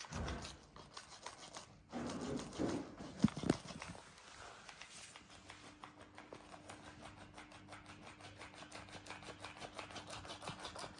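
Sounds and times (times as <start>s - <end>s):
toy motor hum: 6.8s - 10.9s.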